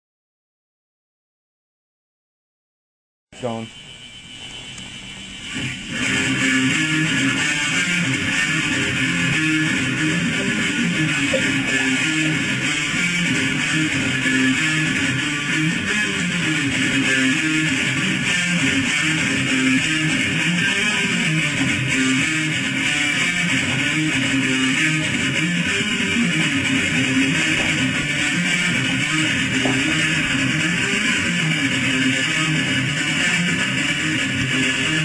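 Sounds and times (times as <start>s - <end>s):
electric guitar riffing: 5.5s - 35.0s.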